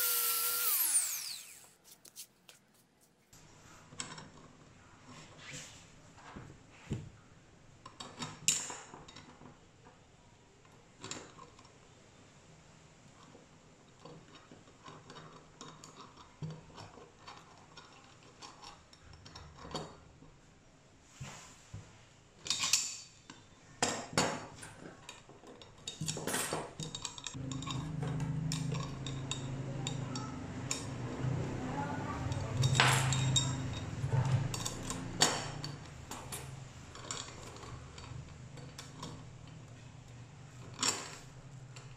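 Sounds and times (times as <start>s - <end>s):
low steady hum: 27.4s - 32.7s.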